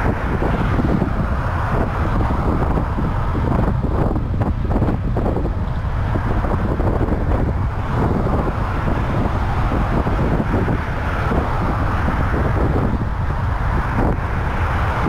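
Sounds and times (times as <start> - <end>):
freeway traffic rush: 0.0 - 15.0
wind buffeting microphone: 0.0 - 15.0.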